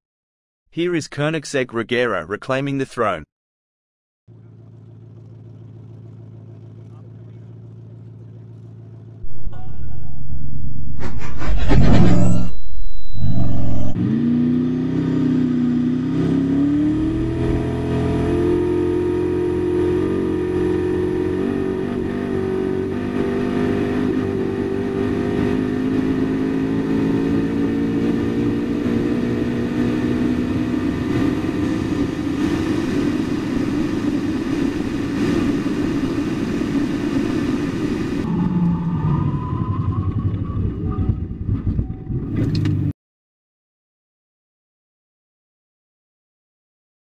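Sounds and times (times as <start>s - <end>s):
car engine accelerating: 13.2s - 42.9s.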